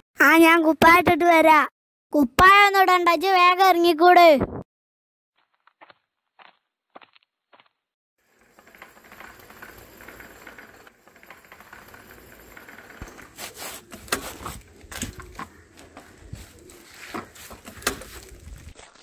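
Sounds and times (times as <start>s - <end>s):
bicycle tyres crunching on dirt: 5.4s - 19.0s
bikes knocking and rattling: 8.2s - 18.8s.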